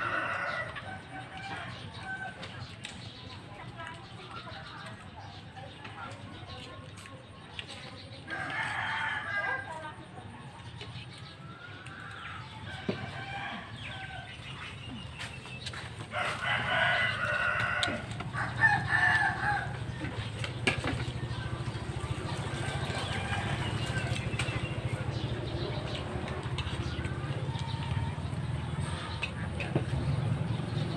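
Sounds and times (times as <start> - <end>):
rooster crowing: 16.1 - 19.9.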